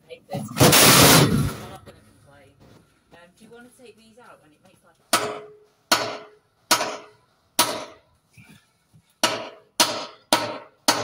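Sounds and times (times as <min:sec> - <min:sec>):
hammer striking metal frame: 0:05.1 - 0:08.1, 0:09.2 - 0:11.0.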